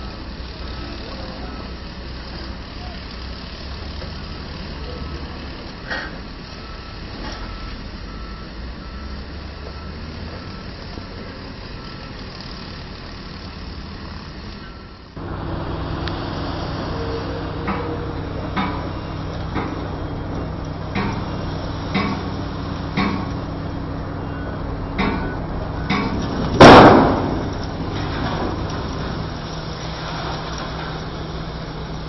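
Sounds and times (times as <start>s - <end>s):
reversing alarm beeping: 0.0s - 2.0s, 3.7s - 32.0s
heavy diesel machinery running: 0.0s - 32.0s
sharp knocks: 25.0s - 27.6s.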